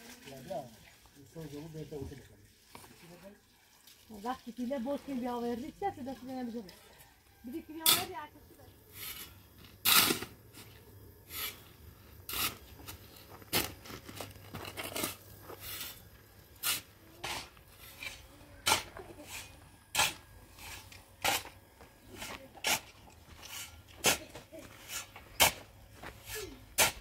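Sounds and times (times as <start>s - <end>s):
short scraping strokes: 16.6s - 27.0s.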